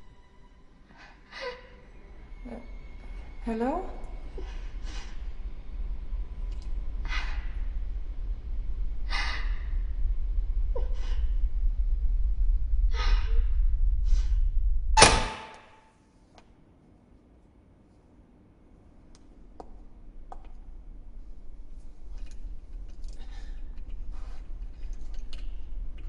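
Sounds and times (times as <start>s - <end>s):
low rumbling drone: 0.0s - 15.4s
loud hit with ringing tone: 15.0s - 15.8s.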